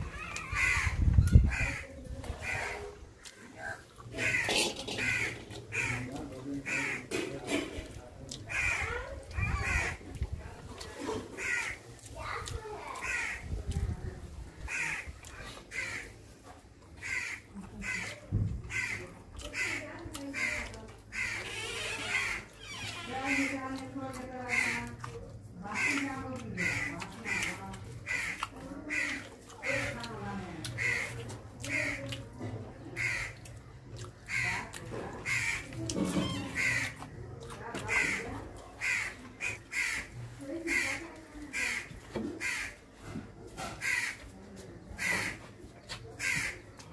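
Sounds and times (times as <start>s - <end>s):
crows cawing: 0.2s - 7.3s, 8.5s - 10.1s, 11.3s - 11.8s, 13.0s - 13.5s, 14.6s - 16.2s, 17.0s - 23.8s, 24.4s - 25.0s, 25.7s - 30.0s, 30.7s - 32.1s, 33.0s - 33.6s, 34.2s - 37.1s, 37.8s - 42.8s, 43.6s - 44.3s, 45.0s - 45.4s, 46.2s - 46.7s.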